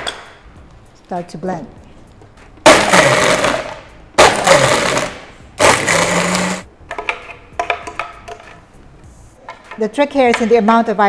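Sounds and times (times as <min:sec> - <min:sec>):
blender crushing ice: 0:02.7 - 0:06.6.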